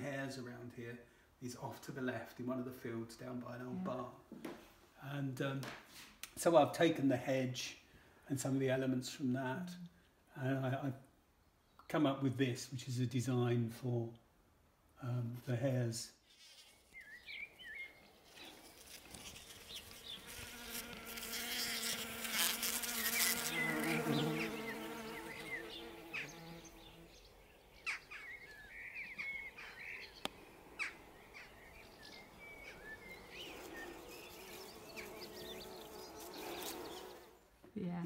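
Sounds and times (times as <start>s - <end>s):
insect buzzing: 16.3s - 28.2s, 29.0s - 37.5s.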